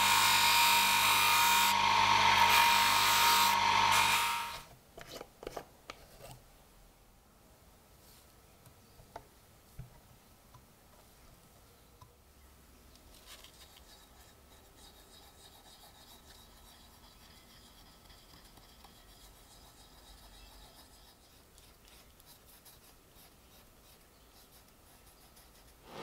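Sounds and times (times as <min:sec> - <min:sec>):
cotton swab scratching metal: 0:13.2 - 0:26.0.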